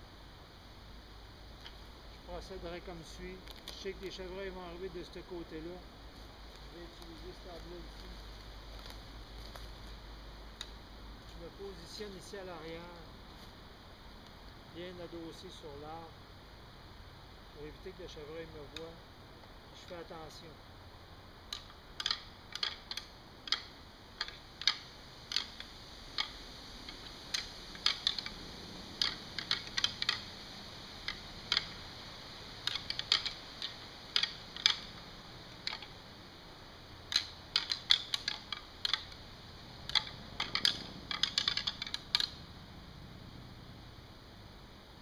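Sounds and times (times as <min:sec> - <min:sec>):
antlers clicking together: 0:21.5 - 0:28.4, 0:29.0 - 0:30.4, 0:31.0 - 0:31.8, 0:32.6 - 0:36.0, 0:37.1 - 0:39.2, 0:39.8 - 0:42.4.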